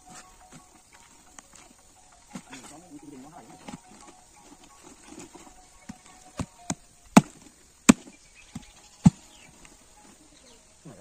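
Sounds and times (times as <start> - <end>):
machete chopping fruit: 5.9 - 9.3.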